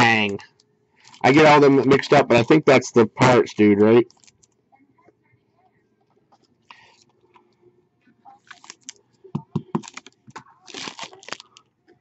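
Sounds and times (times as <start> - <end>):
foil wrapper crinkling: 8.4 - 9.0, 9.7 - 11.7.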